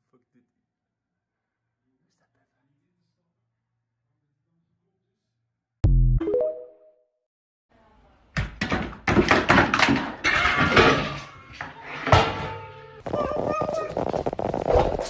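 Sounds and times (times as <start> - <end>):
pitched cat sounds: 13.0 - 14.5
cats tussling on a mat: 13.0 - 15.0.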